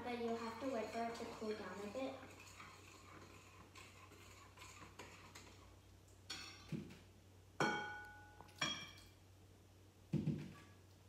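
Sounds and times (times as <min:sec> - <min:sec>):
glass clinking against bowl: 0:07.6 - 0:09.1.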